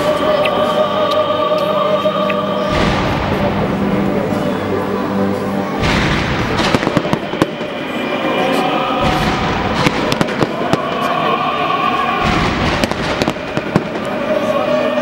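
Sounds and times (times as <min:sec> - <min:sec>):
fireworks bangs and crackling: 0:02.7 - 0:04.0, 0:05.8 - 0:11.4, 0:12.0 - 0:14.5.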